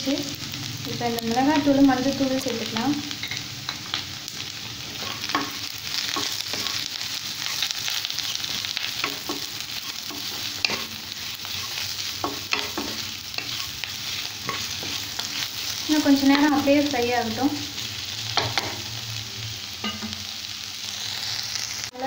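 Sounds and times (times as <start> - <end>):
vegetables sizzling in oil: 0.0 - 22.0
wooden spatula scraping a pan: 4.9 - 16.6.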